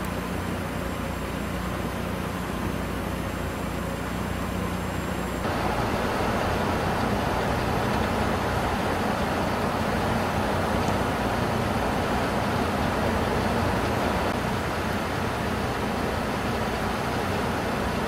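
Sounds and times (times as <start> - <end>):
hiss: 4.9 - 18.0
low hum: 5.4 - 14.4.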